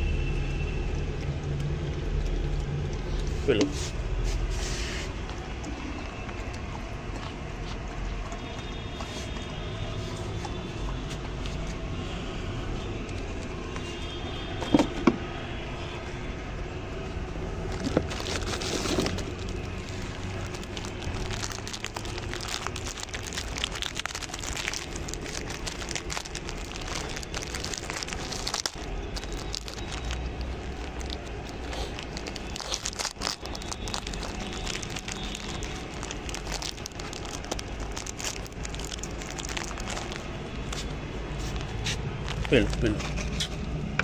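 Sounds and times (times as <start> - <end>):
dog eating from a plate: 0.9 - 3.8, 5.2 - 9.6.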